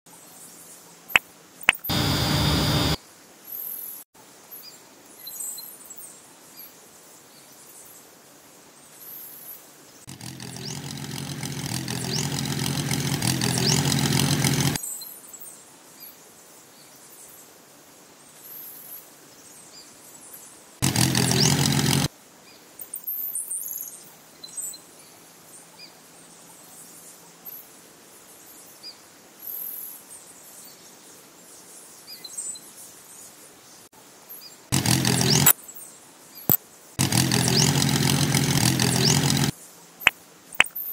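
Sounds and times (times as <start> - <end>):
small electric motor running: 1.8 - 3.0, 10.1 - 14.8, 20.8 - 22.1, 34.7 - 35.6, 37.0 - 39.5.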